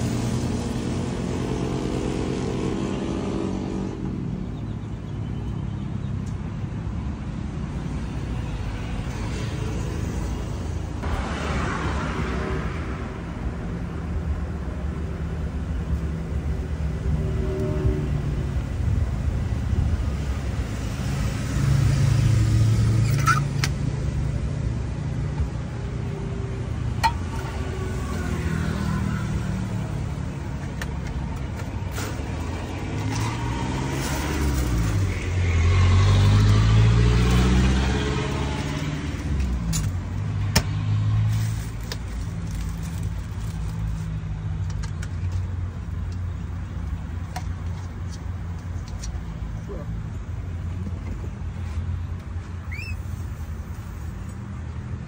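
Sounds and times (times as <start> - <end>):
vehicle engines rumbling: 0.0 - 55.0
vehicle passing by: 8.4 - 13.7, 16.1 - 30.6, 31.7 - 41.8.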